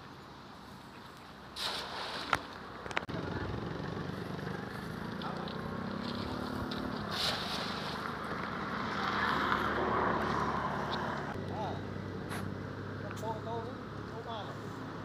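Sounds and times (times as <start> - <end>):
net splashing on water: 1.6 - 2.5, 6.0 - 8.2
low engine hum: 2.6 - 15.0.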